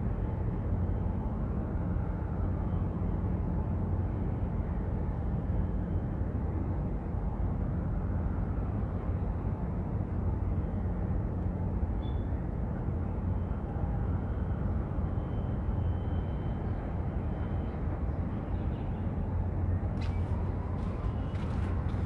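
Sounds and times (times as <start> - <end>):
low rumble of waterfront ambience: 0.0 - 22.0
faint high chirp: 12.0 - 12.4.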